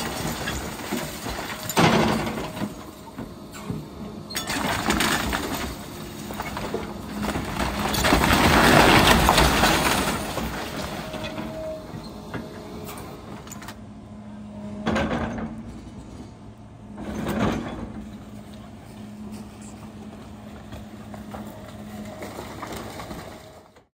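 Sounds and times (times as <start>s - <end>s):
wooden debris crunching and crashing: 0.0s - 2.8s, 4.4s - 11.6s, 21.1s - 23.7s
excavator engine humming: 0.0s - 23.9s.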